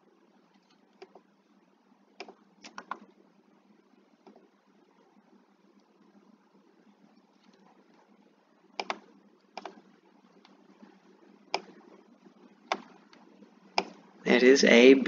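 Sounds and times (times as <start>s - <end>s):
faint background hiss: 0.0s - 15.0s
computer mouse clicking: 0.5s - 1.3s, 2.2s - 3.1s, 4.2s - 4.5s, 8.8s - 10.9s, 11.5s - 11.9s, 12.6s - 14.0s.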